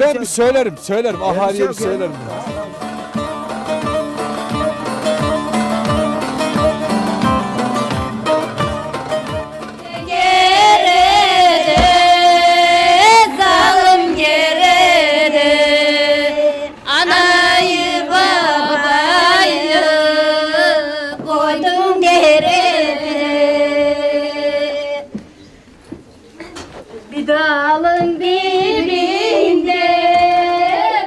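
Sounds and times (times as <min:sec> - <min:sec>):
low thump: 0:11.7 - 0:12.4.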